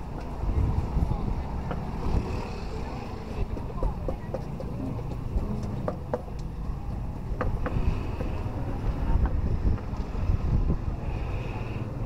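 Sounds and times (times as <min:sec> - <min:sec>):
traffic rumble: 0:00.0 - 0:12.0
wind on microphone: 0:00.2 - 0:04.1, 0:07.0 - 0:12.0.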